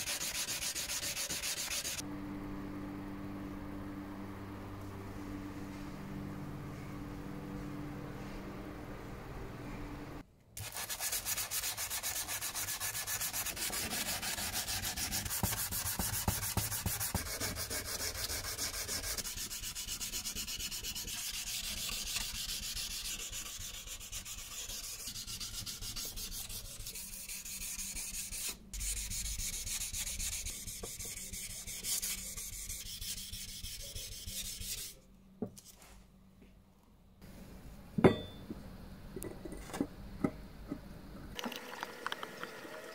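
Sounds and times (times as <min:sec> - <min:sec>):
sandpaper rubbing on metal: 0:00.0 - 0:02.0, 0:10.6 - 0:35.0.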